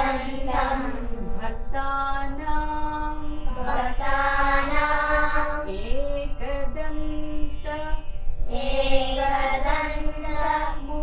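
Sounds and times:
children chanting in unison: 0.0s - 1.2s, 3.6s - 5.7s, 8.5s - 11.0s
woman chanting: 0.0s - 11.0s.

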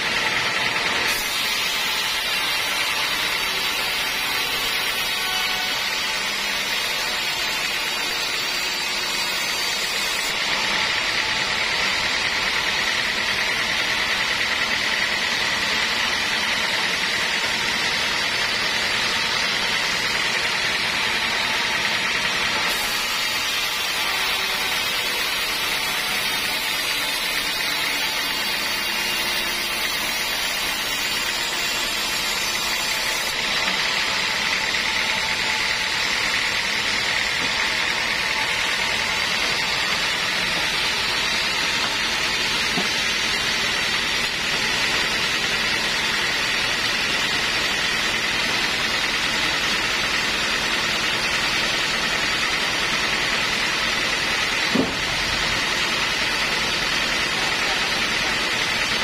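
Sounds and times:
band saw cutting log: 0.0s - 59.0s.

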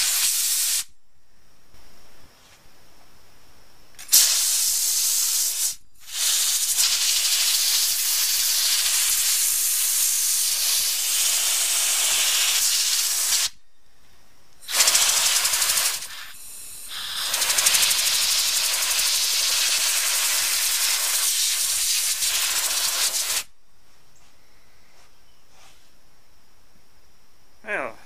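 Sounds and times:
air blow gun hissing: 0.0s - 0.9s, 4.0s - 13.6s, 14.6s - 23.5s.

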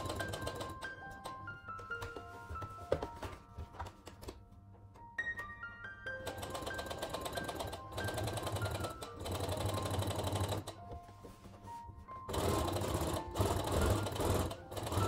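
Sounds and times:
sewing machine stitching: 0.0s - 1.2s, 6.2s - 10.8s, 12.3s - 15.0s.

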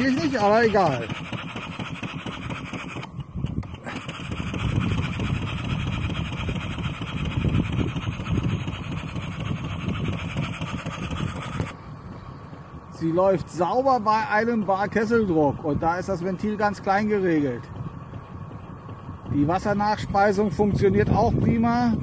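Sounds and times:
steam hissing: 0.0s - 11.8s
model steam engine exhaust beat: 0.0s - 22.0s.

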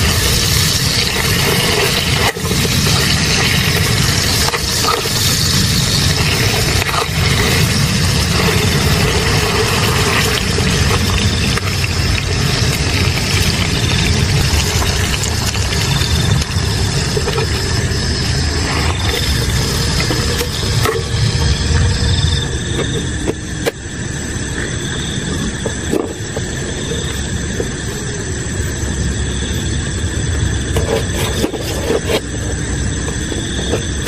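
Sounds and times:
chicken sizzling in oil: 0.0s - 22.1s
gas stove burner rumbling: 0.0s - 34.0s.

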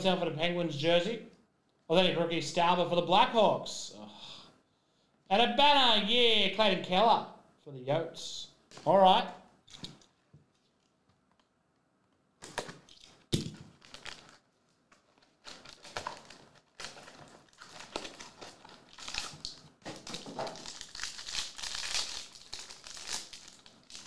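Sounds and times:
plastic wrap crinkling: 12.4s - 24.0s
foil pack tearing: 13.7s - 24.0s.

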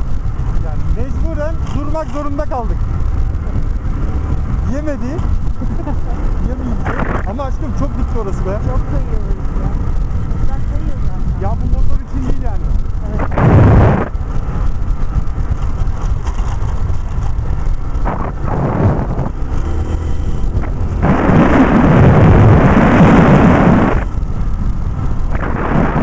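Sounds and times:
motorcycle low rumble: 0.0s - 26.0s
wind buffeting microphone: 0.0s - 26.0s.

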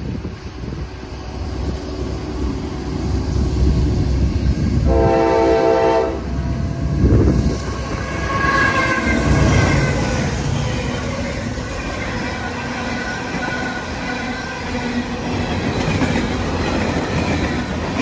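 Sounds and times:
train low rumble: 0.0s - 18.0s
wheel and rail noise: 0.0s - 18.0s
locomotive horn blast: 4.8s - 7.2s.

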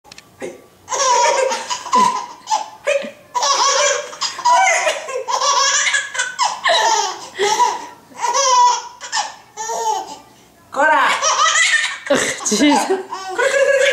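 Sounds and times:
high-pitched laughter: 11.2s - 13.9s.

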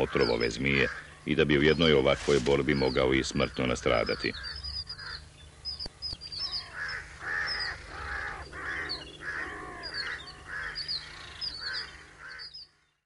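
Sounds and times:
crow cawing: 0.0s - 1.3s, 4.0s - 5.3s, 6.4s - 12.9s
small birds chirping: 0.0s - 13.0s.

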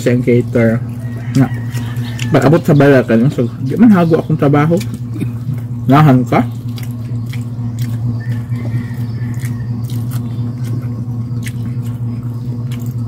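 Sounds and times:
low electrical hum: 0.0s - 13.0s
chewing: 0.3s - 13.0s.

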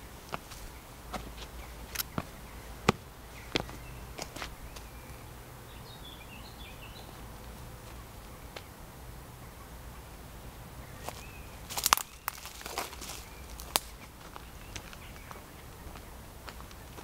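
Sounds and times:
footsteps on dirt path: 0.0s - 5.2s, 6.9s - 8.8s, 11.0s - 17.0s
bird chirping: 0.0s - 17.0s.

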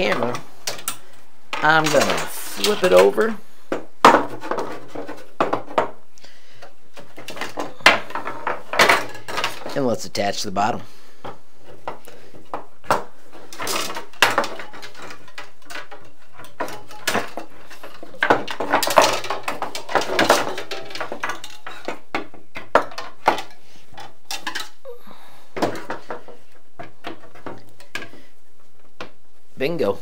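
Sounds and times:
frame rods clicking and knocking: 0.0s - 3.4s, 11.2s - 24.8s.

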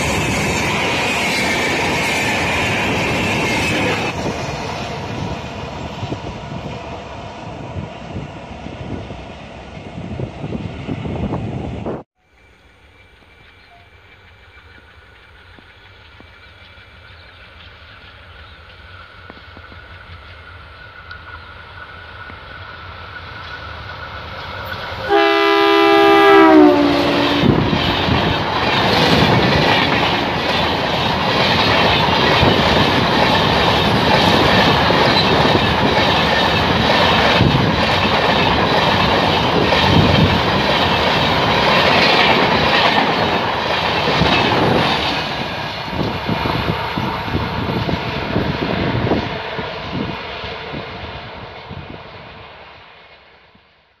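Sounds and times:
train rumbling past: 0.0s - 54.0s
train horn: 25.0s - 28.0s
wheels clacking over rail joints: 27.1s - 47.3s.

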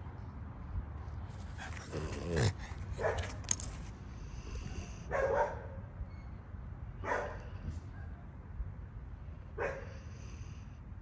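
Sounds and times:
dog vocalizing: 1.6s - 3.1s.

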